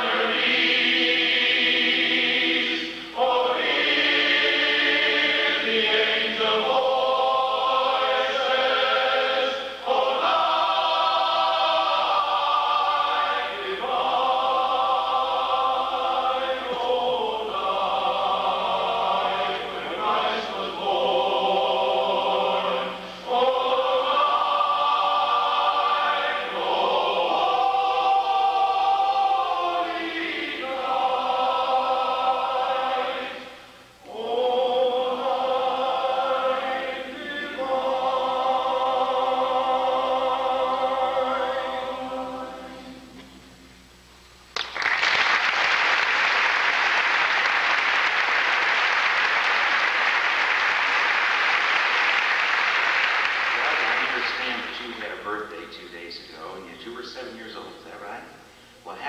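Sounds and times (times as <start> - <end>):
men's chorus singing a cappella: 0.0 - 43.2
audience applause: 44.6 - 54.4.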